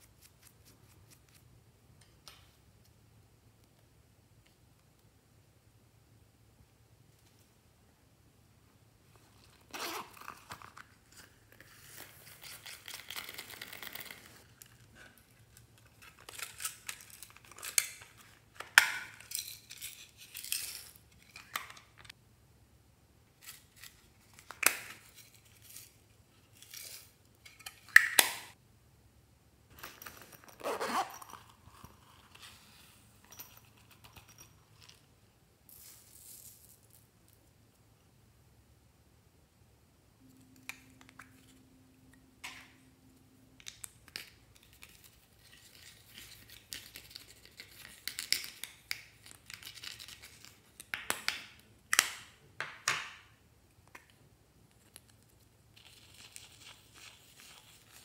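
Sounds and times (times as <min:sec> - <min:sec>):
zipper pulled open: 0:09.5 - 0:10.8, 0:30.4 - 0:31.6.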